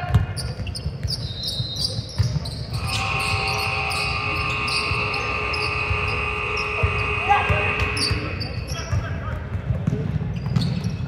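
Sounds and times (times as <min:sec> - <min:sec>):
basketball bouncing on gym floor: 0:00.0 - 0:02.8, 0:07.5 - 0:11.0
shoe squeaks on court: 0:00.3 - 0:03.6, 0:10.3 - 0:11.0
steady high tone: 0:02.8 - 0:08.7.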